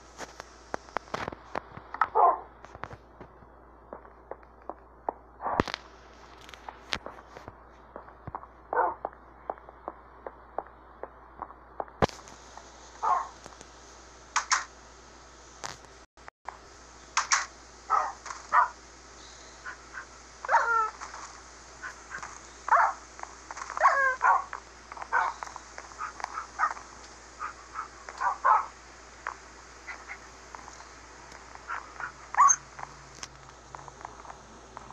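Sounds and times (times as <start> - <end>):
dog whining and yelping: 20.5 - 21.0, 23.8 - 24.4, 31.7 - 32.6.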